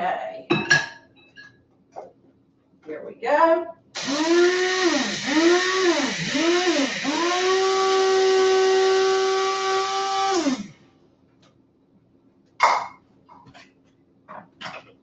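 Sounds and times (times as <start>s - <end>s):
electric coffee grinder motor whining: 4.0s - 10.7s.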